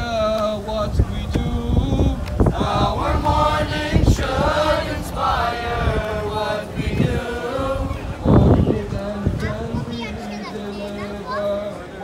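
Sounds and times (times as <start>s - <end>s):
men chanting together: 2.5s - 12.0s.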